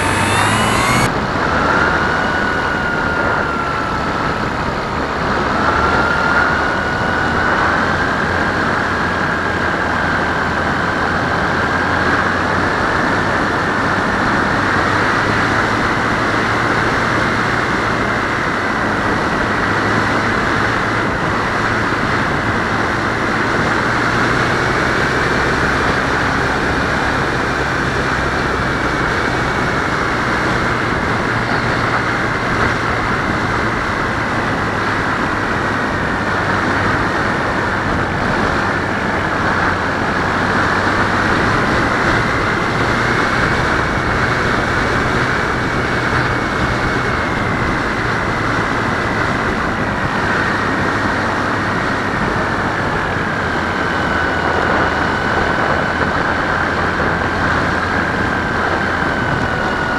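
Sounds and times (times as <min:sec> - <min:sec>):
rushing air: 0:00.0 - 0:03.9
propeller whine: 0:00.0 - 0:59.9.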